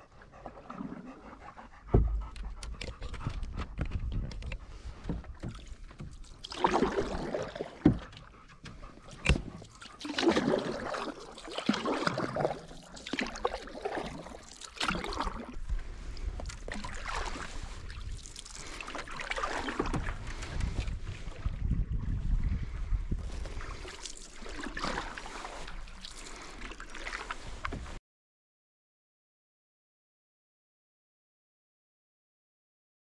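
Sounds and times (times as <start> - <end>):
paddle swishing and splashing: 4.6 - 28.0.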